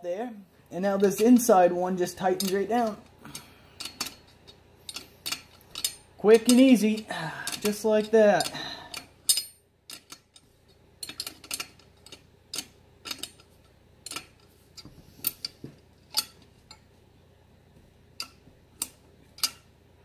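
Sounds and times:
wrench clinking against a nut: 2.4 - 3.1, 4.9 - 10.4, 11.0 - 14.4, 15.2 - 16.8, 18.2 - 19.7.

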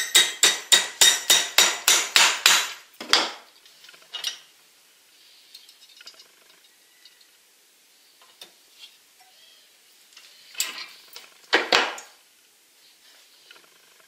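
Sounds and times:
hammer striking steel rod: 0.0 - 2.8.

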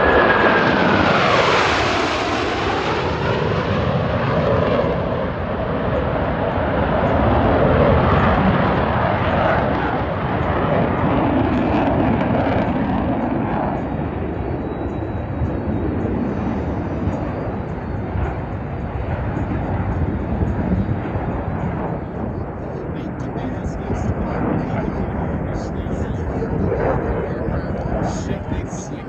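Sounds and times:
falling jet whine: 0.0 - 29.0
jet aircraft passing overhead: 0.0 - 29.0
loud jet rumble: 0.0 - 29.0.

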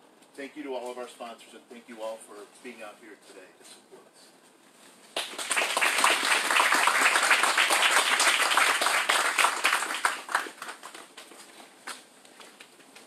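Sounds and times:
crowd applauding: 5.2 - 11.3.

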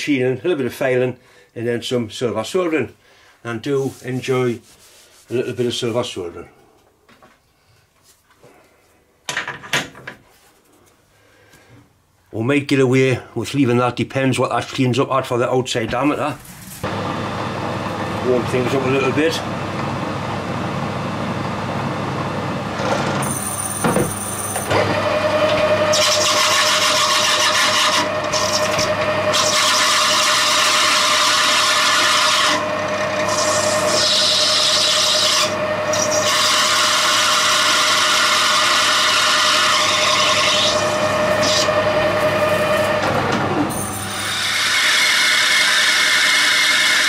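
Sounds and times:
metal lathe cutting hiss: 43.8 - 47.0.

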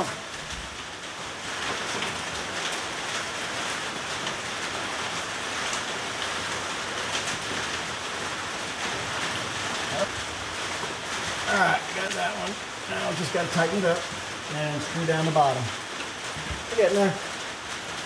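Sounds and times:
steady hiss: 0.0 - 18.0.

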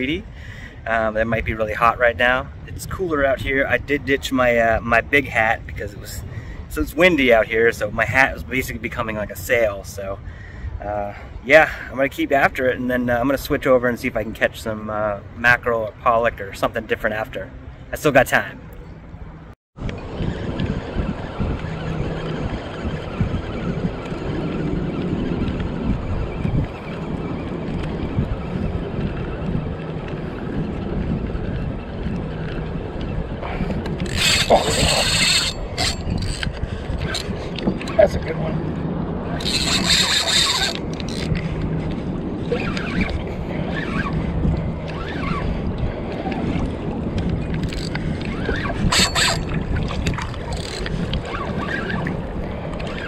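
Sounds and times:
wind buffeting microphone: 0.0 - 53.0
water lapping against kayak: 20.6 - 53.0.

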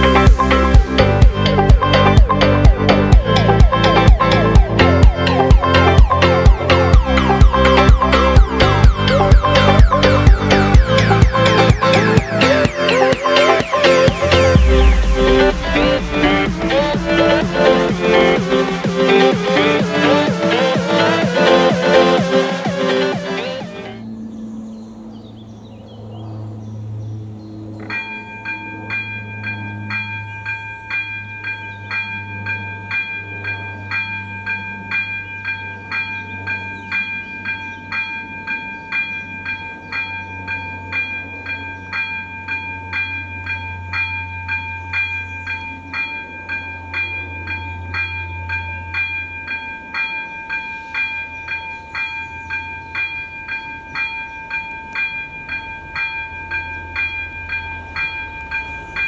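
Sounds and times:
level crossing warning bell: 0.0 - 24.0, 27.8 - 59.0
low hum: 0.0 - 35.2.

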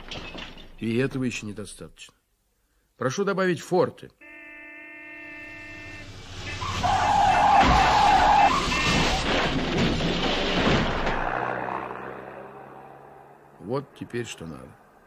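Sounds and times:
car crash crashing and clattering: 0.0 - 1.0, 6.6 - 11.6
tire screech: 5.4 - 13.4.

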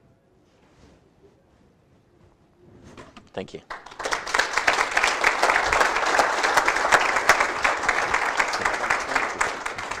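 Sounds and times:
audience applauding: 3.7 - 10.0.

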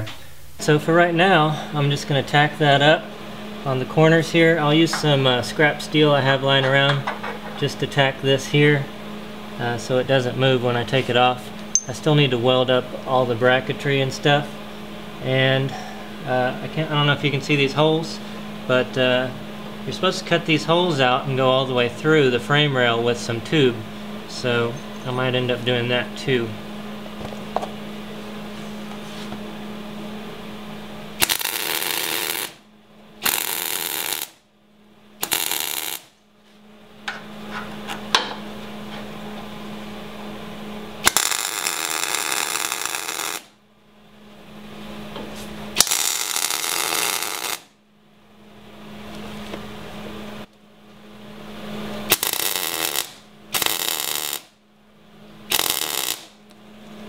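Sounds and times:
welding arc crackling: 31.2 - 32.6, 33.2 - 34.4, 35.2 - 36.2, 41.0 - 43.6, 45.8 - 47.8, 52.0 - 54.6, 55.5 - 56.4.

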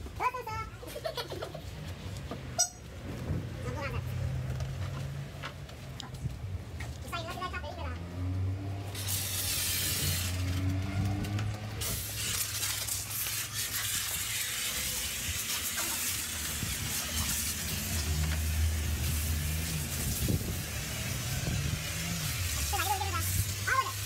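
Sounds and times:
hose water spraying on car: 8.4 - 24.0.

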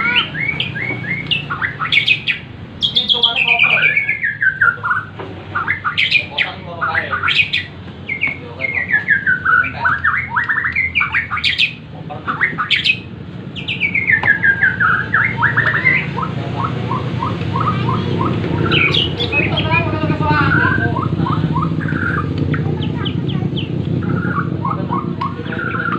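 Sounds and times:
songbird singing: 0.0 - 25.9.

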